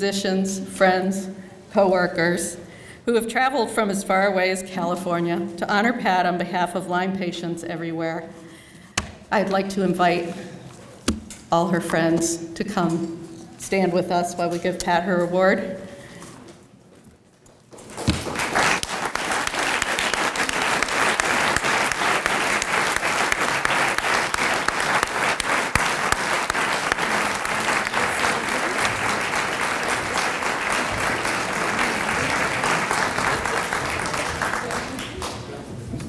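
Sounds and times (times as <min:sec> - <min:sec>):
audience applauding: 0:18.2 - 0:35.7.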